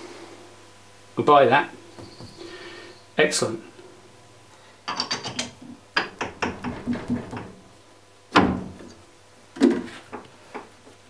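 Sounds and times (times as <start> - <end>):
small metal clicks and knocks: 4.9 - 7.5.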